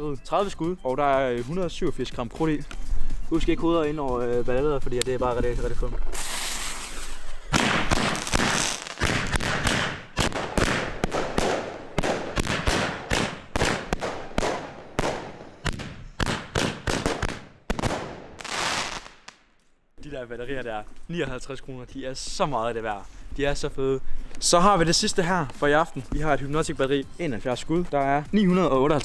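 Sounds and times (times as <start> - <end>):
firework shots: 6.1 - 19.5.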